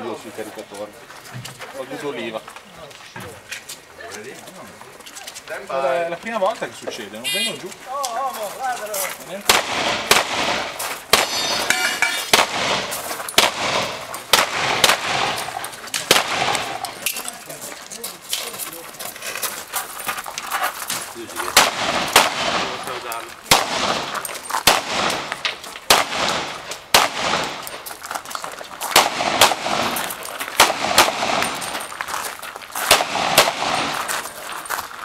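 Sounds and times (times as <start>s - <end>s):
pistol shots: 9.5s - 17.0s, 21.5s - 27.7s, 28.9s - 31.9s, 32.9s - 34.0s.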